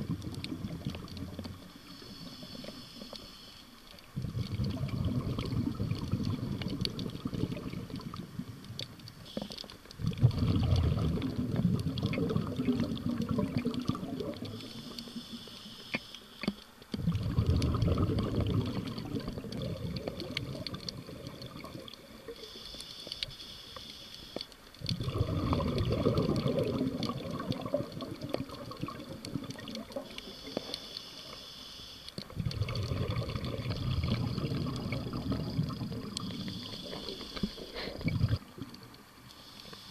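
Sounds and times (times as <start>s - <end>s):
exhaled bubbles rushing: 0.0s - 1.8s, 4.1s - 8.9s, 10.0s - 14.8s, 17.0s - 22.3s, 24.8s - 30.2s, 32.2s - 38.9s
regulator inhale hiss: 1.8s - 3.9s, 14.4s - 16.7s, 22.2s - 24.6s, 30.0s - 32.2s, 35.4s - 38.4s, 39.3s - 39.9s.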